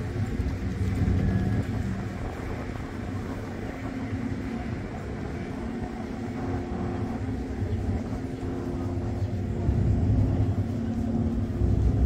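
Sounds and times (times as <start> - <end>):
traffic drone: 0.0 - 12.0.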